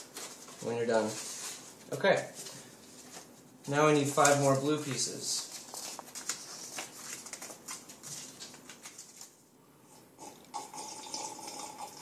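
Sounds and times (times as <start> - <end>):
card paper rustling and tapping: 4.0 - 9.4.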